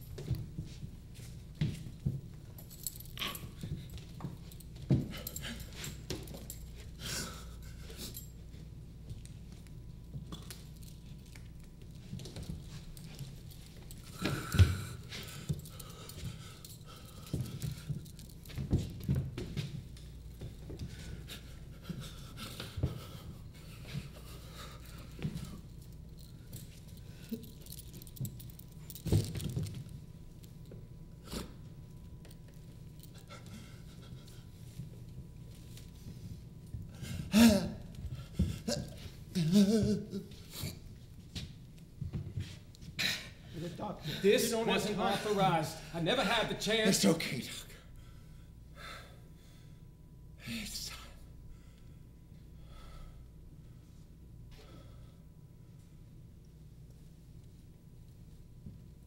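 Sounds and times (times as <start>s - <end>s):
low steady hum: 0.0s - 59.0s
metal buckles clinking: 2.5s - 6.8s, 24.8s - 30.7s.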